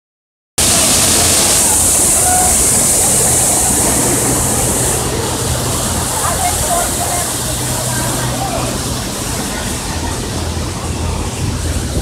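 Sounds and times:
waterfall rushing into pool: 0.6s - 12.0s.

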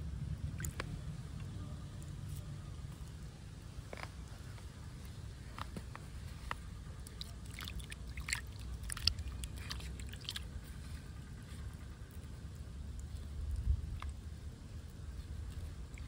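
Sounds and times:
low steady rumble: 0.0s - 16.0s
wet splashes and squelches: 0.4s - 1.0s, 6.2s - 11.1s, 14.8s - 16.0s.

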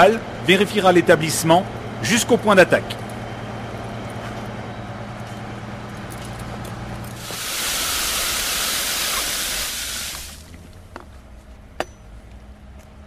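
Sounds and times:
water jetting from hose: 7.2s - 10.5s.

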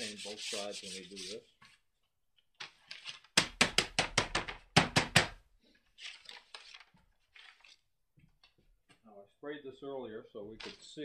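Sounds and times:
sandpaper scraping paper: 0.0s - 1.5s.

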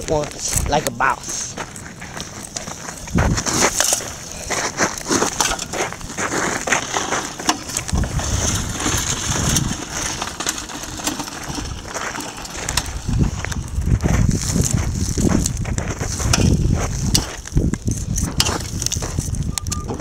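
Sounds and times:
fire crackling: 0.0s - 20.0s
footsteps crunching on gravel: 0.0s - 20.0s.

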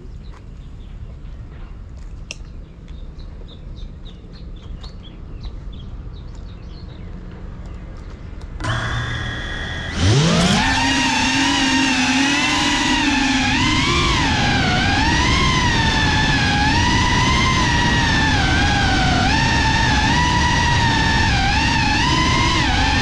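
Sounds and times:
drone motors whining: 8.6s - 23.0s.

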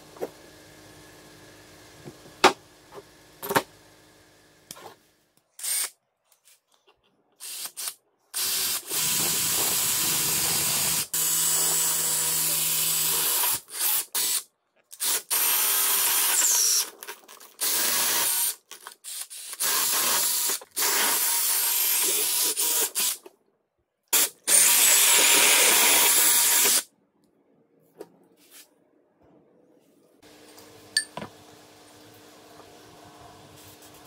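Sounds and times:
drill boring through rubber: 5.6s - 5.9s, 7.4s - 14.4s, 15.0s - 16.9s, 17.6s - 23.2s, 24.2s - 26.9s.

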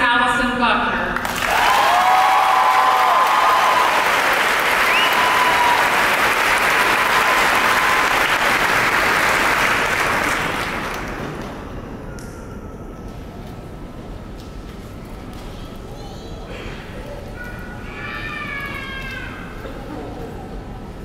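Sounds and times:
crowd cheering: 1.2s - 11.5s
crowd applauding: 1.2s - 11.7s.

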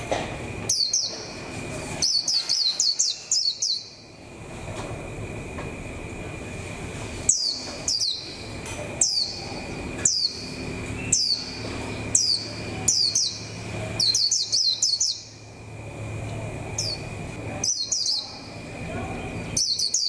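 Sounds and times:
bird chirping: 0.7s - 1.4s, 2.0s - 4.0s, 7.3s - 15.4s, 16.8s - 18.6s, 19.3s - 20.0s.

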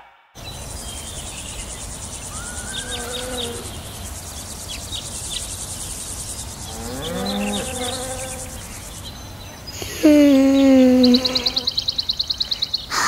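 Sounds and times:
bird chirps: 0.4s - 13.0s
crickets chirring: 0.4s - 13.0s
drawn-out rising and falling call: 0.4s - 13.0s.

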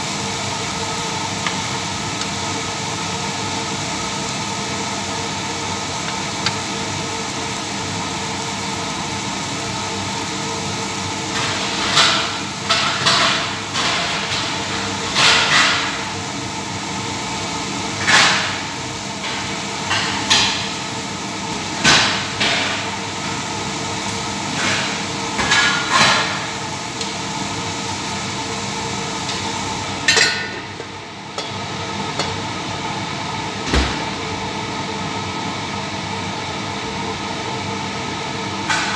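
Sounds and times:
chicken frying in a pan: 0.0s - 38.9s
kitchen utensils clattering: 30.1s - 30.7s.

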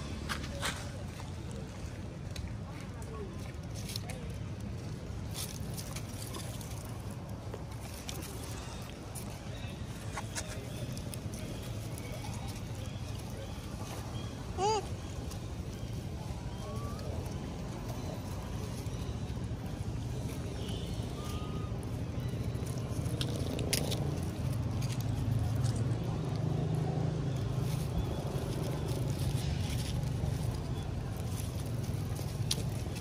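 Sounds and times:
leaf litter crackling: 0.1s - 33.0s.

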